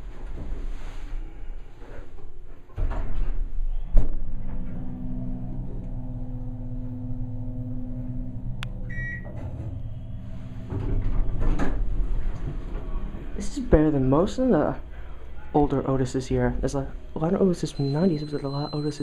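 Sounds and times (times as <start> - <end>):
elevator low hum: 0.0 - 19.0
short electronic beep: 8.8 - 10.7, 17.6 - 19.0.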